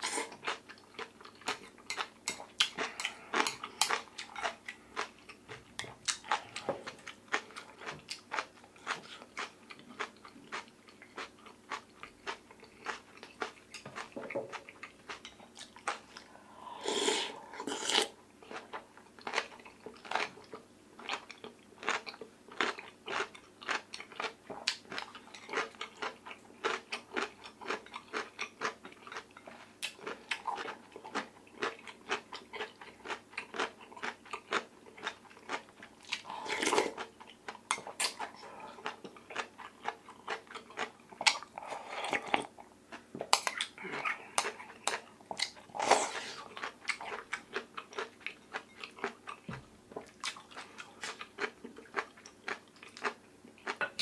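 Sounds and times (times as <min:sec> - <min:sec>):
person chewing wetly: 0:00.0 - 0:16.4, 0:17.0 - 0:54.0.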